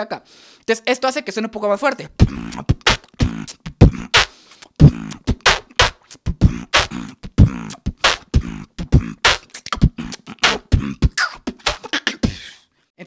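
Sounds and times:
human beatboxing: 2.1 - 12.6
mouth-made snare hits: 2.2 - 12.5.

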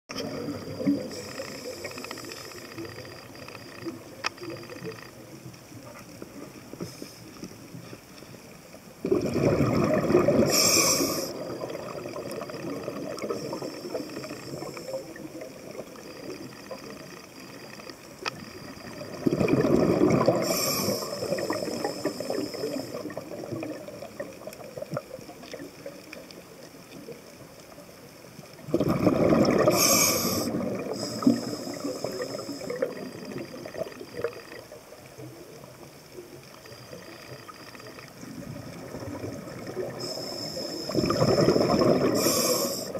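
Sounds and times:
regulator hiss: 0.5 - 3.9, 10.4 - 11.8, 12.6 - 19.0, 20.2 - 23.3, 29.7 - 34.5, 39.8 - 42.9
diver exhaling bubbles underwater: 9.0 - 16.0, 18.8 - 25.6, 28.6 - 34.6, 38.3 - 42.9.

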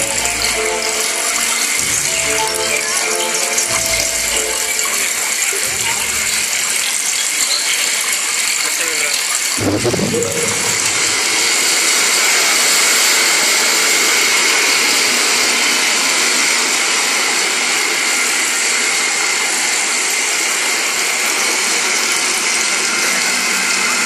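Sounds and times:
rushing noise with high tones: 9.6 - 20.8.

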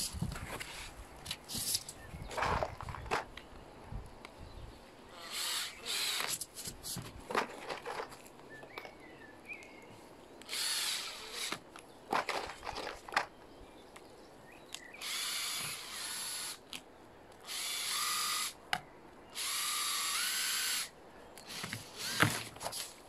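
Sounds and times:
handling clicks and knocks: 0.1 - 3.5, 6.2 - 9.7, 11.5 - 13.5
cordless drill driving screws: 5.2 - 6.7, 10.4 - 11.6, 15.0 - 16.6, 17.5 - 18.6, 19.4 - 22.9.

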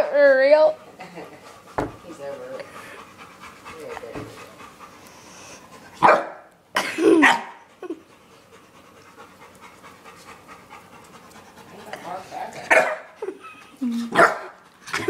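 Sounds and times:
dog panting: 0.0 - 6.0, 7.5 - 15.0.

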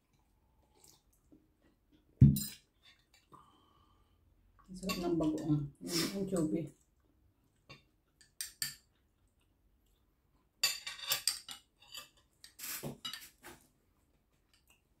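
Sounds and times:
cutlery clinking on a plate: 7.7 - 8.9, 10.6 - 13.4.

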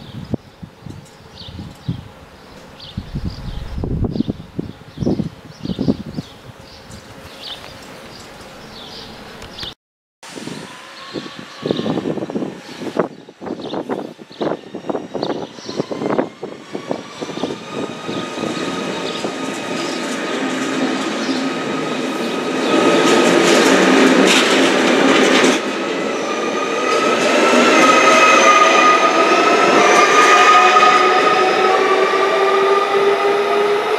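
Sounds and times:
wheel and rail noise: 15.8 - 32.2.

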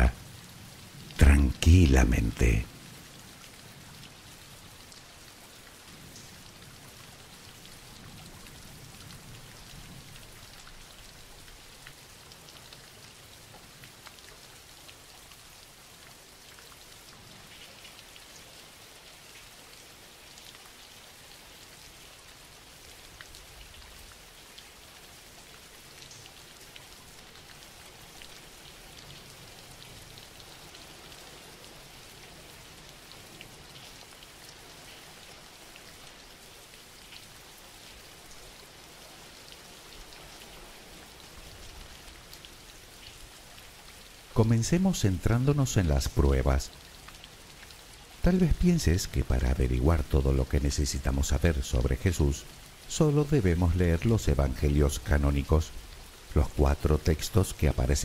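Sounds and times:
steady rain falling: 0.0 - 58.0
raindrops ticking: 43.0 - 58.0.

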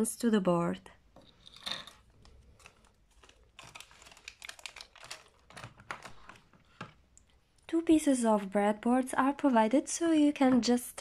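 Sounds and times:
plastic bags crinkling: 1.3 - 6.9.

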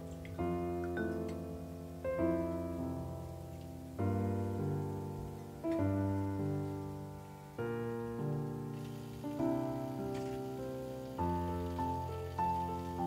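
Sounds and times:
soft piano chords: 0.0 - 13.0.

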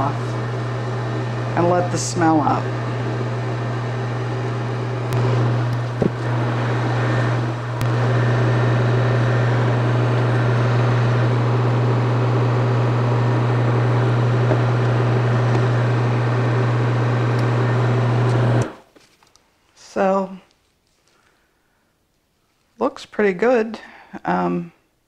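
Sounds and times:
exhaust fan humming: 0.0 - 18.9.

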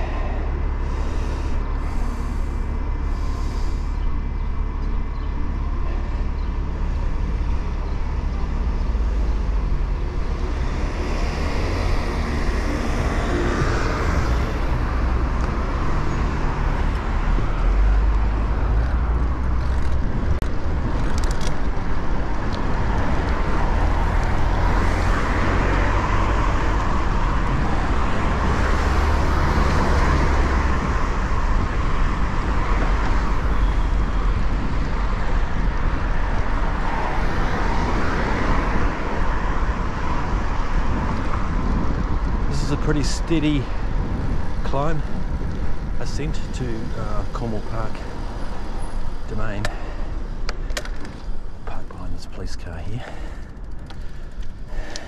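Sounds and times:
traffic hiss: 0.0 - 4.3
wind rumble on microphone: 0.0 - 51.8.

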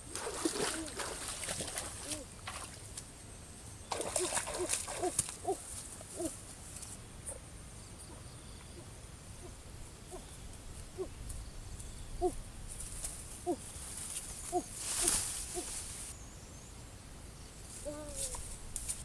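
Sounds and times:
rustling and snapping: 4.1 - 5.9, 14.0 - 16.1.

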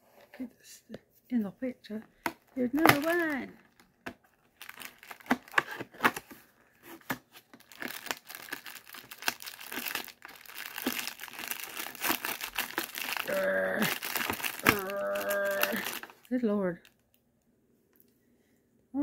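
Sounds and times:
plastic packet crinkling: 2.6 - 6.2, 7.4 - 17.1.

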